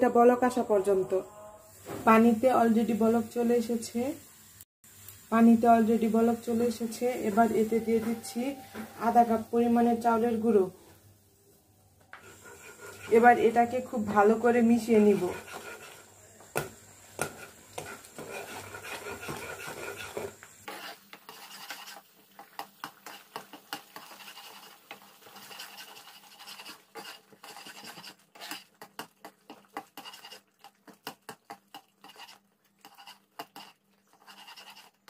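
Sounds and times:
spatula scraping a pan: 0:06.8 - 0:09.5, 0:12.2 - 0:16.2, 0:17.2 - 0:35.0.

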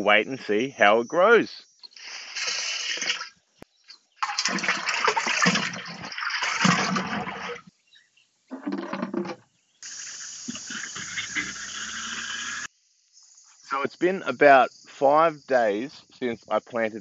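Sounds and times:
watering can spraying: 0:02.0 - 0:03.3, 0:04.2 - 0:07.6, 0:09.8 - 0:12.7
liquid pouring into a barrel: 0:02.0 - 0:03.4, 0:04.2 - 0:07.7.

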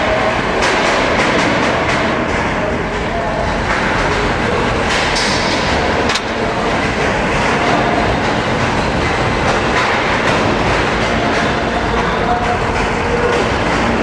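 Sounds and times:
robot motors rumbling and clattering: 0:00.0 - 0:14.0.

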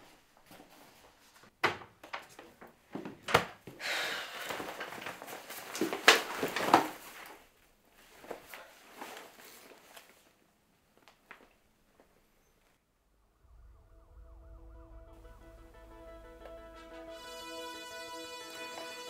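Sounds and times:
rummaging in a backpack: 0:04.5 - 0:10.4.

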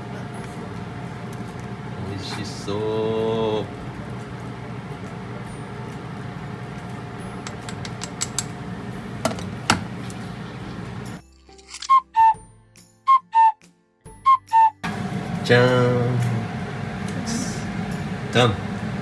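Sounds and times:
steady background hum: 0:00.0 - 0:11.2, 0:14.8 - 0:19.0
chopsticks stirring and tapping in pot: 0:06.8 - 0:08.5.

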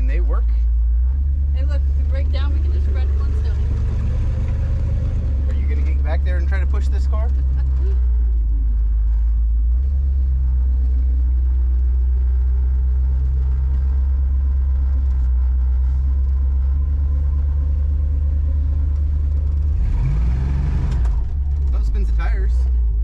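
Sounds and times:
car engine and road rumble: 0:00.0 - 0:23.0.

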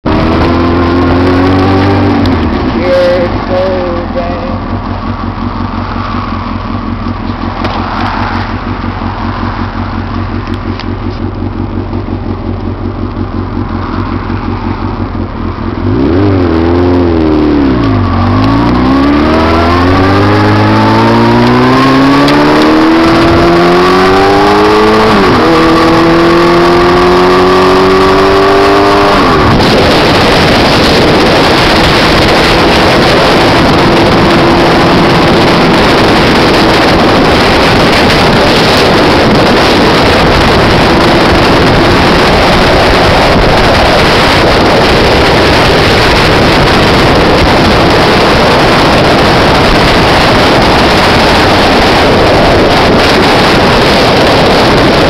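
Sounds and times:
motorcycle engine: 0:00.0 - 0:55.0
wind on microphone: 0:14.8 - 0:55.0.

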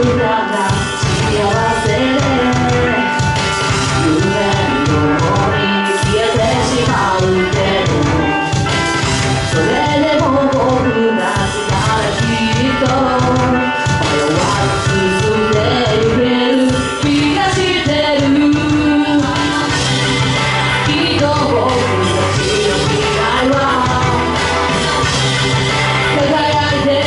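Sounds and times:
woman singing into microphone: 0:00.0 - 0:08.8, 0:09.4 - 0:25.3, 0:26.0 - 0:27.0
loud backing music with drums: 0:00.0 - 0:27.0.

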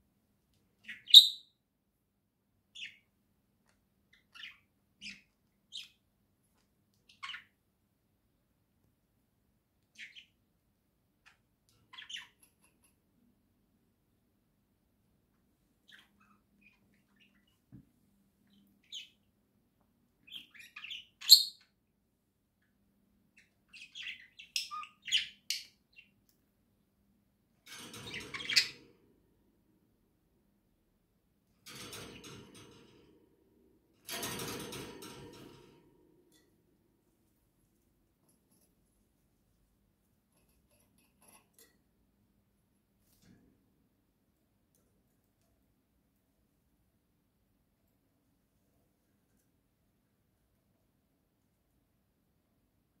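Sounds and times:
budgerigar chirping: 0:00.9 - 0:01.4.

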